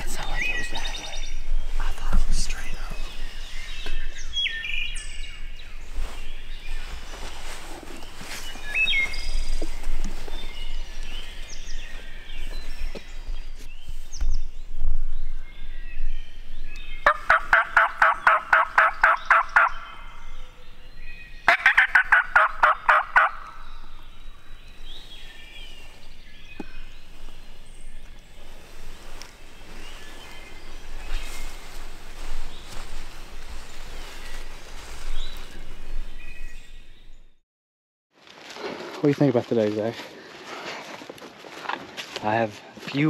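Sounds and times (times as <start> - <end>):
turkey calling: 17.0 - 20.2, 21.4 - 24.0.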